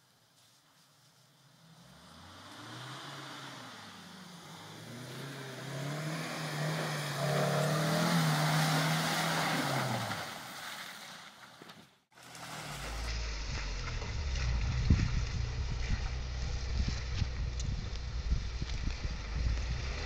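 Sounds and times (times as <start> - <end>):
vehicle engine driving past: 1.5 - 10.2, 12.2 - 20.0
low rumble: 12.3 - 20.0.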